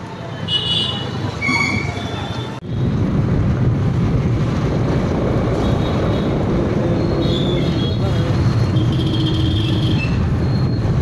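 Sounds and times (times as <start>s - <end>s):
traffic rumble: 0.0s - 11.0s
wind buffeting microphone: 2.6s - 9.0s.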